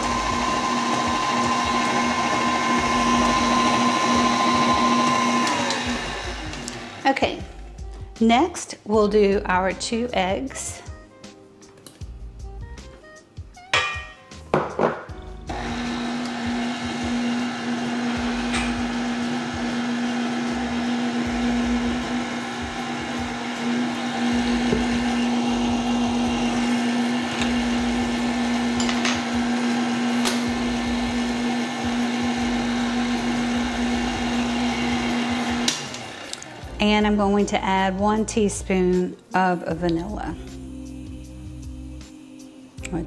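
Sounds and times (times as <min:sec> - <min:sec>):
stand mixer motor hum: 0:00.0 - 0:07.0, 0:15.5 - 0:36.6
knock: 0:14.6 - 0:15.1.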